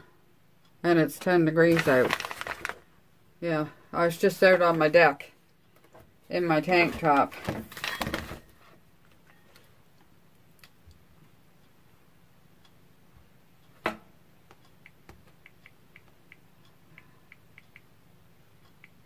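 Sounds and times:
light ticks: 14.4s - 17.9s, 18.6s - 19.0s.

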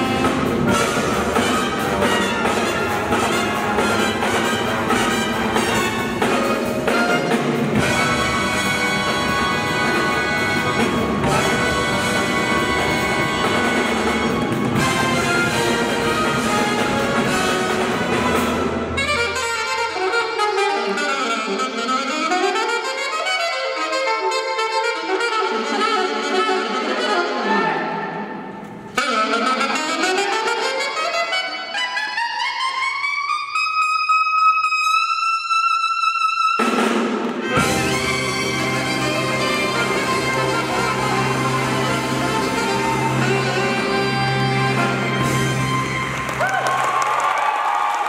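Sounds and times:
jazz big band playing: 0.0s - 47.0s
solo saxophone runs: 37.4s - 46.4s.

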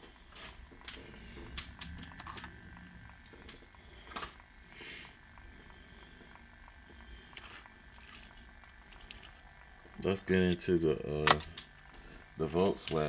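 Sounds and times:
small clicks of toy cars: 7.3s - 9.4s.

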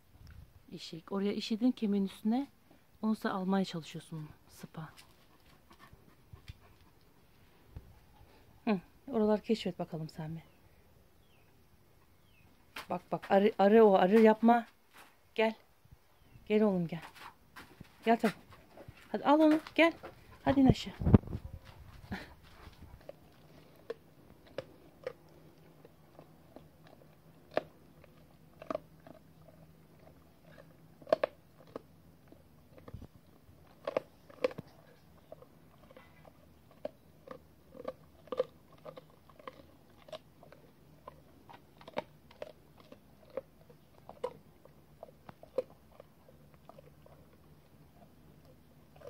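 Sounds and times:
dog chewing and crunching: 17.0s - 49.0s.

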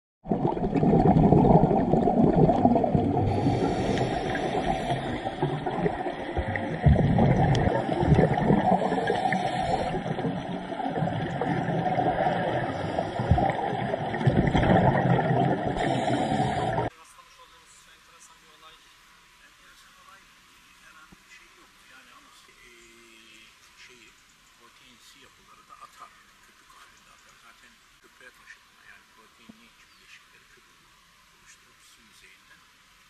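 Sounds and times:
underwater rush of water: 0.2s - 16.9s.

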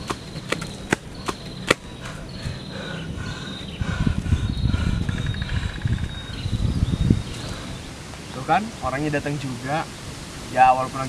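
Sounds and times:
low rumble: 1.9s - 7.8s.

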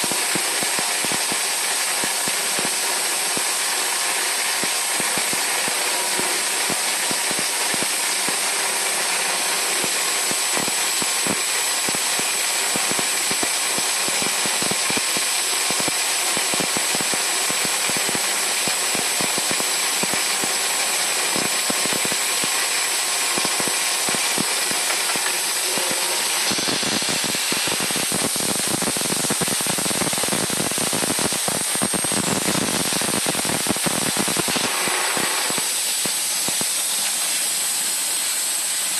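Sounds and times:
lathe mechanical hiss: 19.7s - 38.9s.

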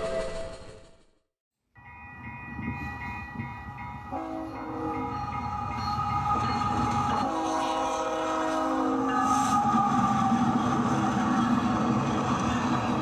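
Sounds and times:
locomotive bell ringing: 1.8s - 9.7s
multi-note air horn blasts: 7.2s - 9.6s.

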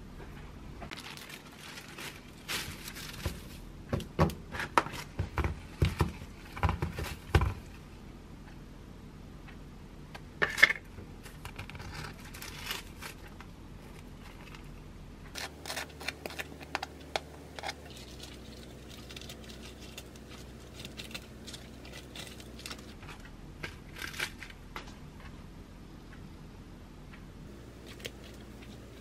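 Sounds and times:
lettuce leaves rustling: 0.9s - 3.7s, 11.2s - 14.7s, 15.4s - 24.7s
plastic tub crinkling: 0.9s - 7.8s, 11.2s - 14.7s, 15.3s - 24.9s.

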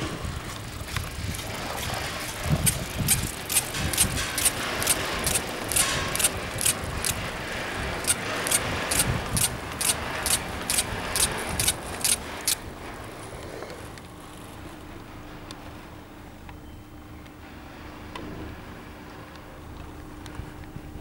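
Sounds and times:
chairlift mechanical rumble: 0.0s - 16.6s
sharp even clicks: 2.6s - 7.2s, 8.0s - 12.6s.

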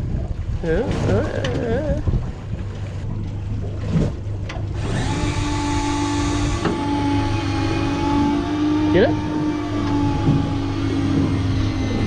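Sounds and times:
low steady hum: 0.0s - 12.0s
fishing reel motor whine: 4.7s - 12.0s.

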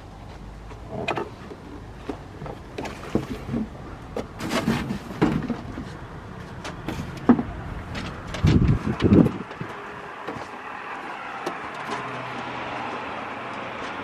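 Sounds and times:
cardboard and paper rustling: 2.8s - 10.6s.

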